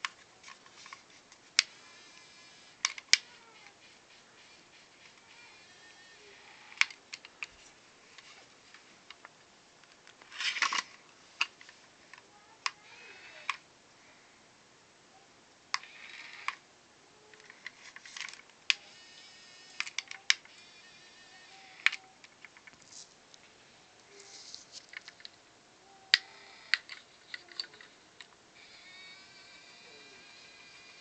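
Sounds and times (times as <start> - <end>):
small electric motors whirring: 18.7 - 22.1, 28.6 - 31.0.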